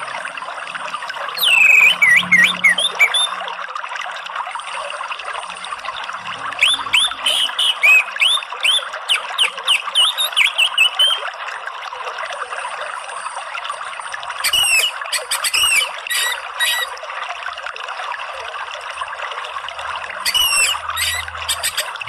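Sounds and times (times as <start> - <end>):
water trickling: 0.0 - 22.0
thrush singing whistled notes: 1.0 - 3.5, 6.6 - 11.2, 14.4 - 16.9, 20.2 - 22.0.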